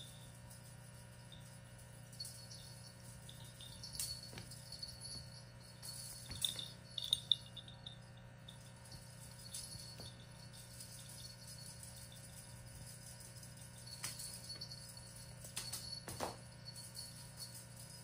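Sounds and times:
light jingles and clinks: 0.0s - 18.0s
low hum: 0.0s - 18.0s.

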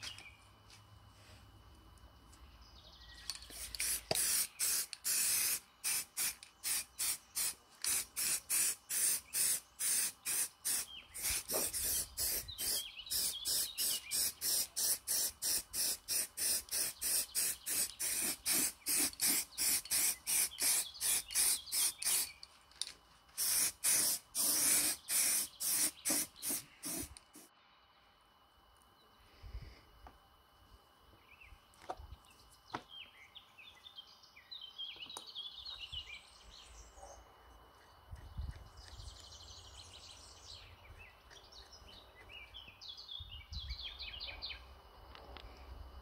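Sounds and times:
spray can hissing in short squirts: 3.5s - 22.4s, 23.4s - 27.5s.

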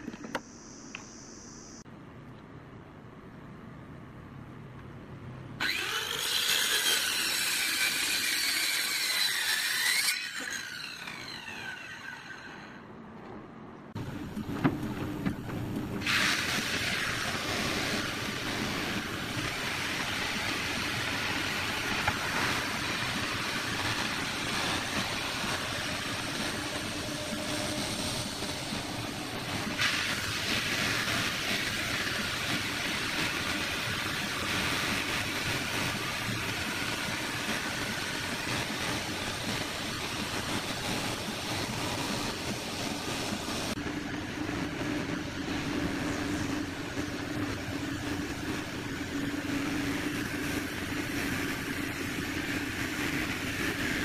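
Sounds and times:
wood surfacing machine running: 5.6s - 12.9s, 14.0s - 54.0s
circular saw cutting wood: 5.6s - 13.0s, 16.0s - 43.4s.

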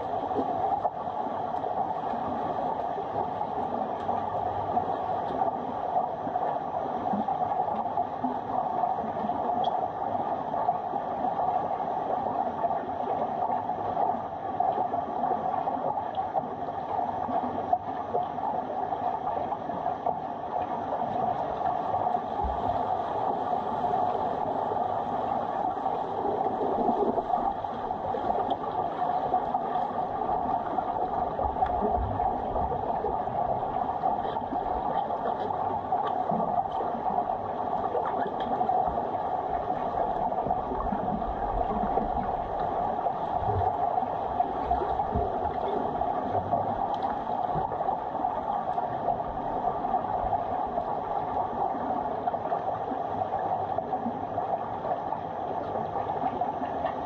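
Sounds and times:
muffled underwater rushing: 0.0s - 57.0s
faint underwater clicks: 9.1s - 10.0s, 19.5s - 51.5s, 55.6s - 57.0s.

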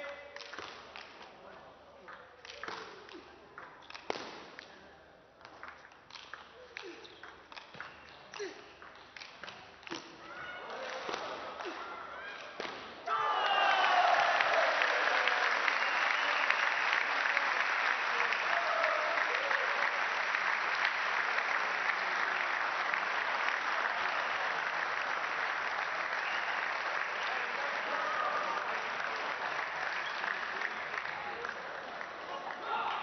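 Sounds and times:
crowd applauding: 13.2s - 33.0s.

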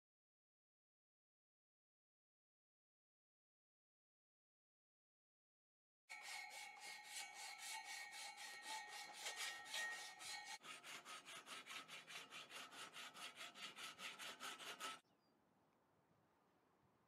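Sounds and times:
sandpaper scraping on steel: 6.1s - 15.0s.

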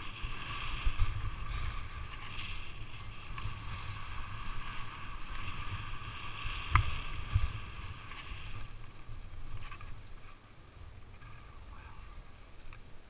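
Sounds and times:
skis swishing on snow: 0.0s - 10.5s
wind rumbling on microphone: 0.0s - 13.0s.

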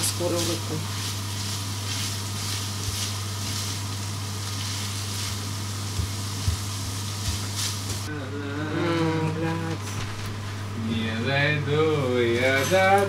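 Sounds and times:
meat sizzling in a pan: 0.0s - 8.1s.

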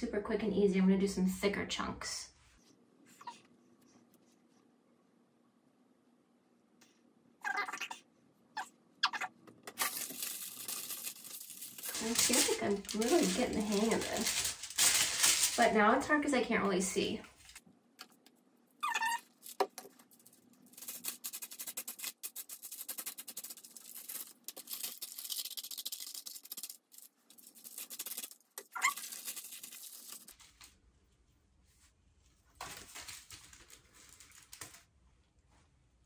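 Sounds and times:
foil crinkling and rustling: 9.7s - 16.1s, 19.2s - 30.8s, 32.5s - 34.9s.

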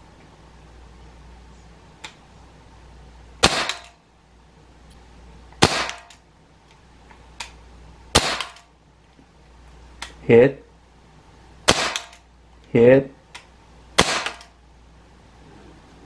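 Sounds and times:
air pistol shots: 3.4s - 4.0s, 5.6s - 6.2s, 8.1s - 8.7s, 11.6s - 12.3s, 14.0s - 14.6s.

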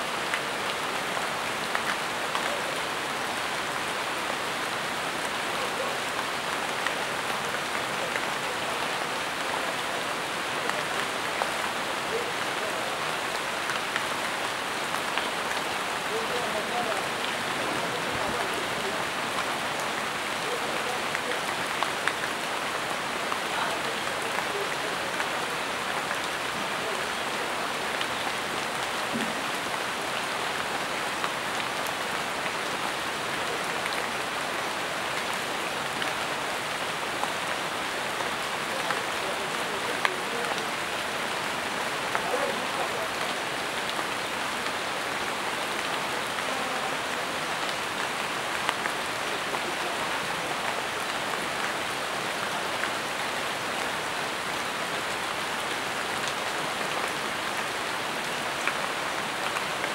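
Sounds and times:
rain falling on leaves: 0.0s - 59.9s.

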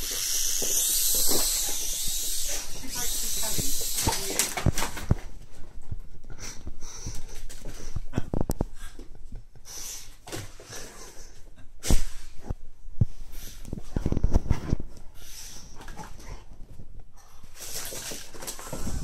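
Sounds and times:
dog sniffing and snorting: 0.0s - 4.4s.

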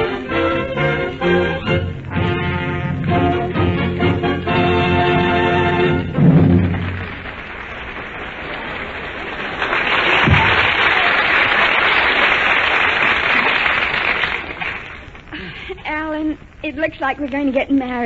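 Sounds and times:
orchestra playing: 0.0s - 7.9s
studio audience applauding: 6.5s - 15.1s.

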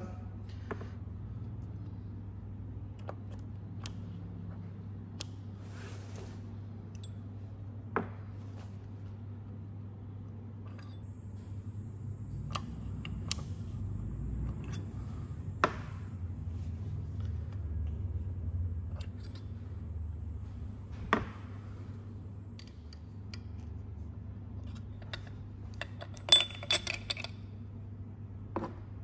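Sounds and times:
low steady hum: 9.0s - 28.5s
insect buzz: 11.0s - 23.0s
metal parts clicking on wood: 24.7s - 27.4s.

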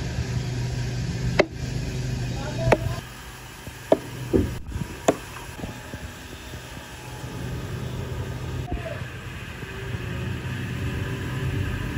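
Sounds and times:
steady low hum: 0.0s - 11.9s
axe striking wooden log: 1.3s - 1.6s, 2.7s - 3.0s, 3.9s - 5.4s.

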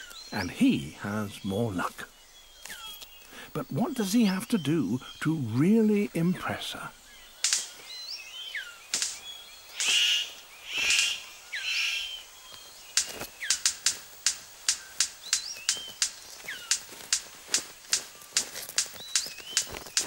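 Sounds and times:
high squeaky bird calls: 0.0s - 20.0s
sharp bird clicks: 2.6s - 3.4s, 7.1s - 20.0s
bird hissing bursts: 8.9s - 12.2s.

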